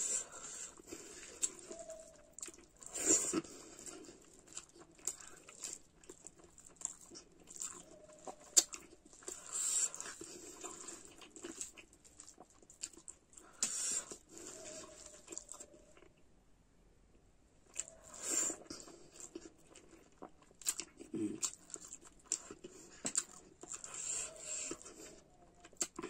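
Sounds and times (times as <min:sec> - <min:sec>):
chewing and lip-smacking: 0:00.0 - 0:16.2, 0:17.7 - 0:26.0
fingers squishing rice and curry: 0:00.0 - 0:16.2, 0:17.7 - 0:26.0.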